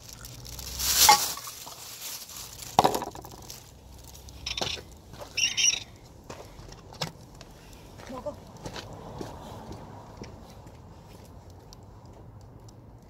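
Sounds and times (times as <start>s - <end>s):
high chirp: 4.4s - 6.0s.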